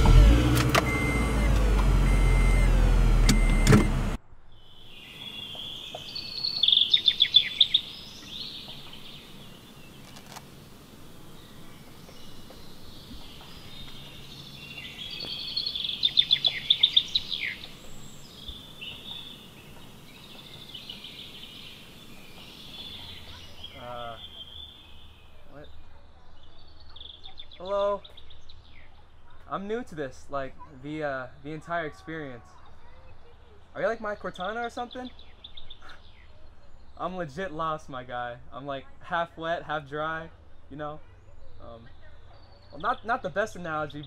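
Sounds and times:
car cabin hum: 0.0s - 4.2s
birds singing: 4.5s - 44.0s
rapid chirping trills: 4.6s - 25.8s.

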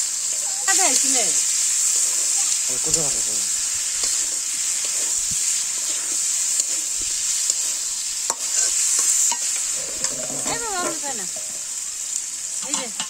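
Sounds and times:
frying in hot oil sizzle: 0.0s - 13.0s
metal spatula scraping pan: 8.3s - 11.8s.

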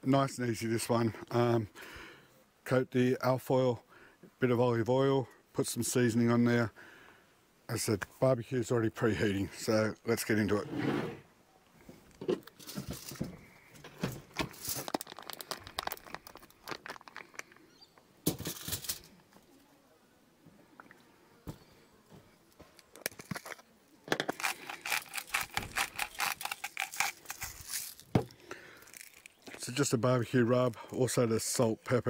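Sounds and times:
plastic packaging crinkling: 14.2s - 17.6s, 22.8s - 29.8s.

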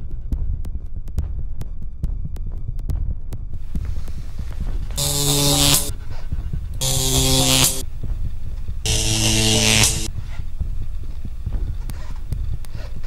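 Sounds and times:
electric buzzes with hiss: 4.9s - 6.0s, 6.8s - 7.8s, 8.9s - 10.1s.

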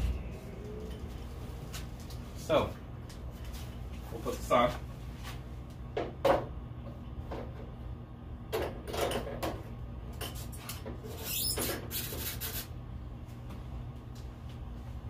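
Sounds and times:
low hum: 0.0s - 4.2s.

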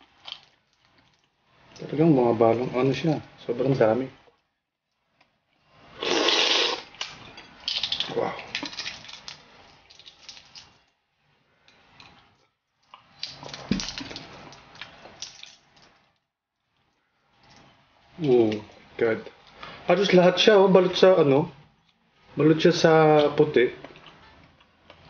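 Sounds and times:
eggshell cracking and peeling: 7.0s - 10.7s, 13.0s - 15.7s.

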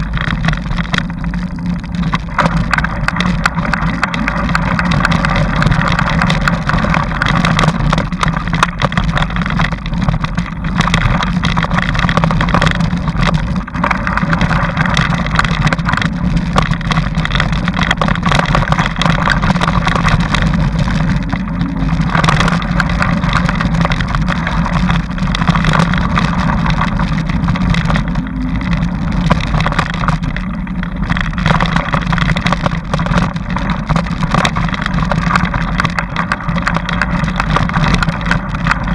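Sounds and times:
bike rattling on dirt trail: 0.0s - 38.9s.

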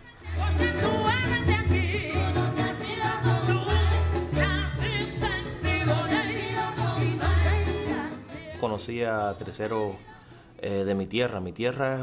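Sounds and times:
person singing: 0.0s - 10.9s
bass line: 0.2s - 8.8s.

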